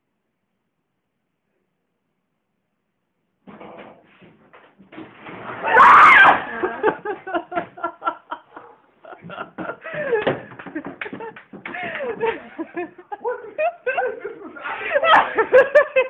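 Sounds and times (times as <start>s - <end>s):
bursts of laughter: 11.8s - 16.0s.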